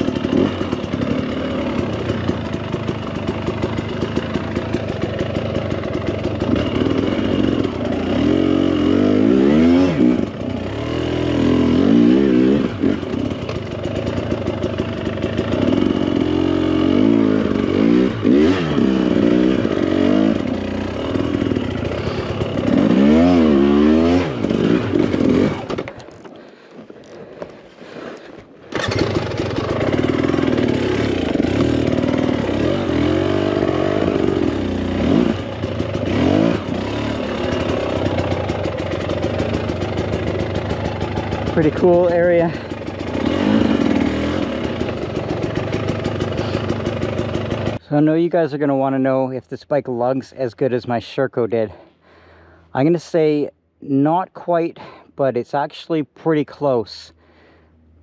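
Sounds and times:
motorcycle engine revving: 0.0s - 26.7s, 28.7s - 47.9s.

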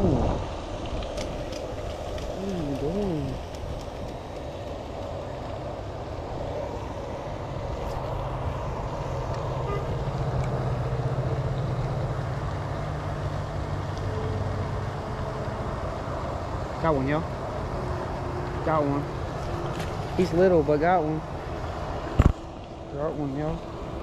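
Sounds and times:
motor engine droning: 6.7s - 16.6s.

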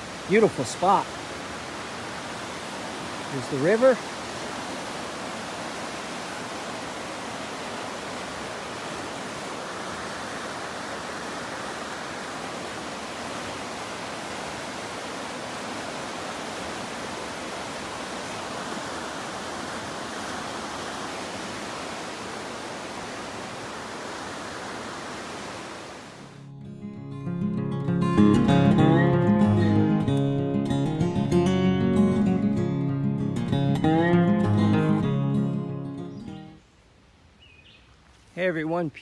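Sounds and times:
river rushing over rapids: 0.0s - 26.4s.

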